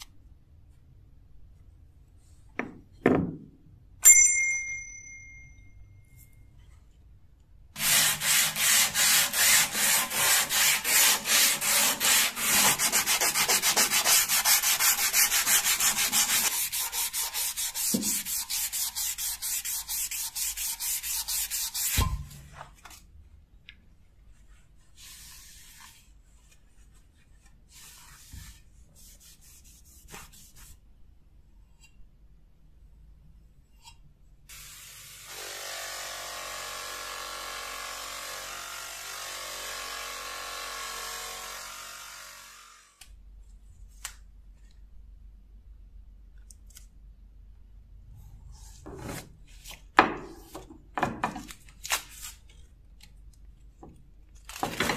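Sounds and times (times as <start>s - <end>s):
knock: 2.6s - 3.5s
bell ding: 4.0s - 6.1s
sandpaper rubbing steel blade: 7.8s - 22.0s.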